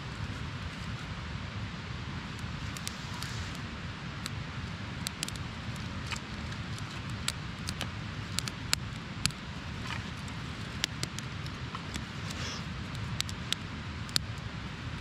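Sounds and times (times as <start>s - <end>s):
fire crackling and popping: 2.2s - 15.0s.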